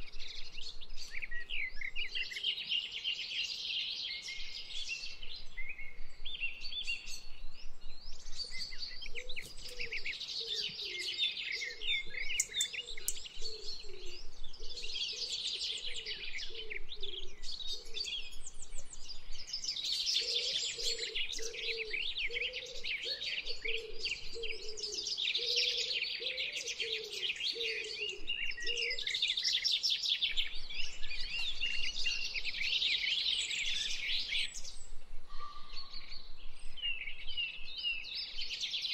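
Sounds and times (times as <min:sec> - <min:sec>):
small birds chirping: 0:00.0 - 0:38.9
lower repeated bird call: 0:09.1 - 0:18.4, 0:31.7 - 0:36.5.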